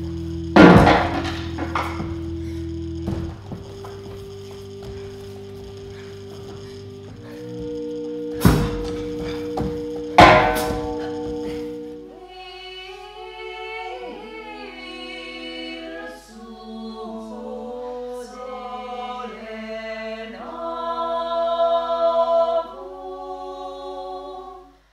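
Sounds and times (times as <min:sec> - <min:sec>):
held droning chord: 0:00.0 - 0:22.8
group of voices singing chords: 0:00.0 - 0:24.9
loud crash: 0:00.6 - 0:02.6.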